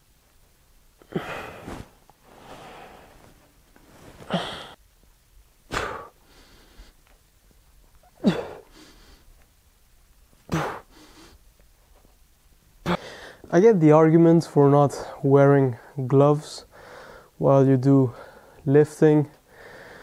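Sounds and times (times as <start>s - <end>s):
man breathing forcefully: 1.0s - 4.8s, 5.7s - 7.0s, 12.9s - 13.5s, 16.7s - 17.4s, 19.5s - 20.0s.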